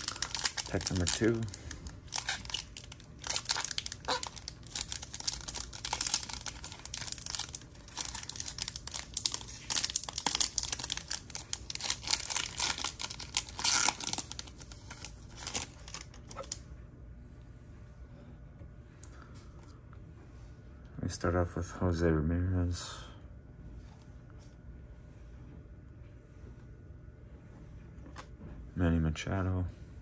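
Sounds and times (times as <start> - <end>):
foil wrapper tearing and crinkling: 0.0 - 16.6.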